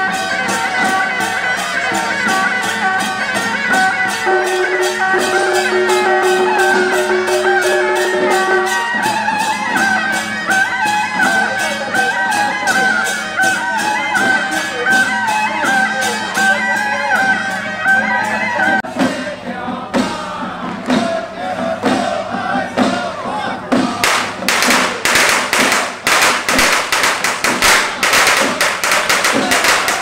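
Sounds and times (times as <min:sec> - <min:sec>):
wavering high melody: 0:00.0 - 0:18.8
procession music with drum beat: 0:00.0 - 0:30.0
long held low note: 0:04.3 - 0:09.0.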